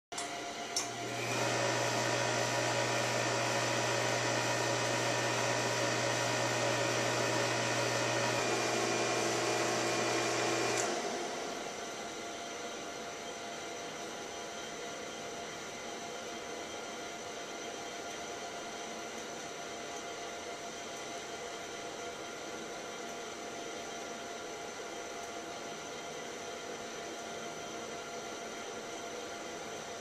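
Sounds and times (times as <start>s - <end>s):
electric motor humming: 1.0s - 11.9s.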